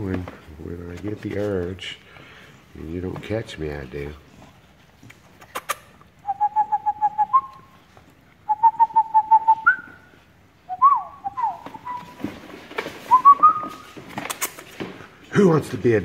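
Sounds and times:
person whistling: 6.2 - 7.7, 8.5 - 10.1, 10.7 - 12.2, 13.1 - 13.8.

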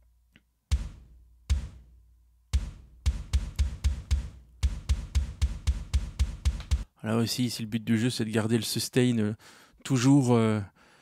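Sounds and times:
metal kick drum hits: 0.7 - 6.9.

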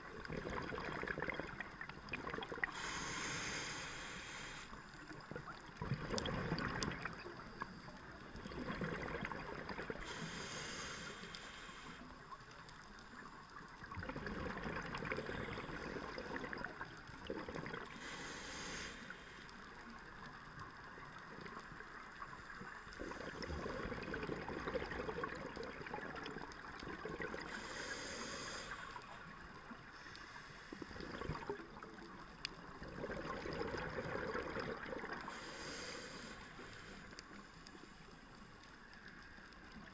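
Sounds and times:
exhaled bubbles gurgling underwater: 0.0 - 39.9
regulator inhalation hiss: 2.6 - 5.0, 9.9 - 12.2, 17.9 - 19.9, 27.4 - 29.2, 35.2 - 38.0.

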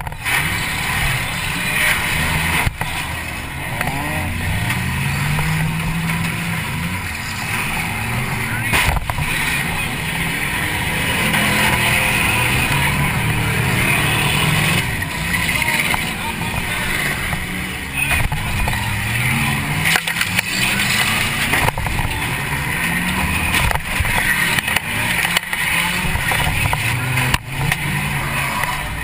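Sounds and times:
car engine revving: 0.0 - 29.0.

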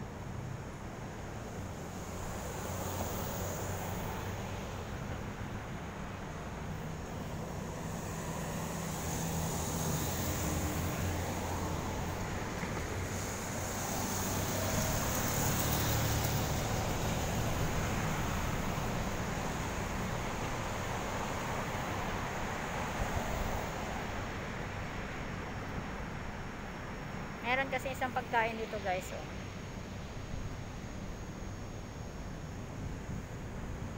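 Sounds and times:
road traffic hum: 0.0 - 33.9
vehicle passing close by: 7.4 - 24.2.

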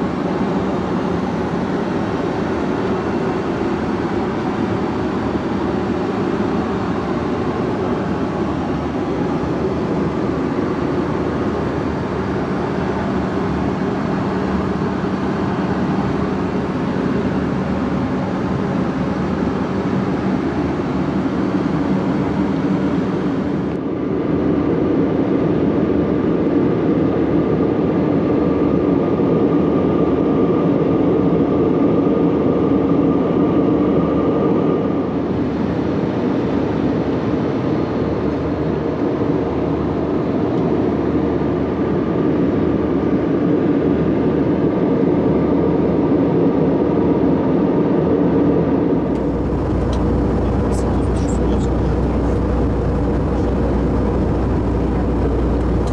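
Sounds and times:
airflow rushing in aircraft cabin: 0.0 - 42.5, 47.9 - 55.9
engine hum: 48.9 - 55.9.

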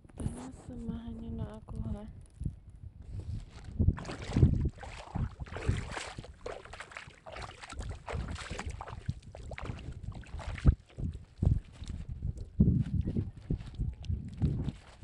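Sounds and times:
water splashing from wading: 3.4 - 12.0.

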